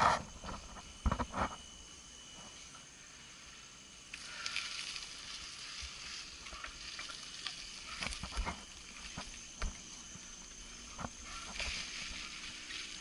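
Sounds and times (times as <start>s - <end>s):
bike tyres rustling through leaves: 4.1s - 13.0s.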